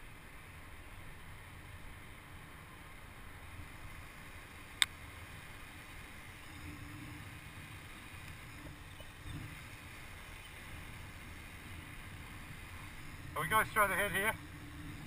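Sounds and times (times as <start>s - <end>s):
bike tyres rolling on wet tarmac: 0.0s - 15.0s.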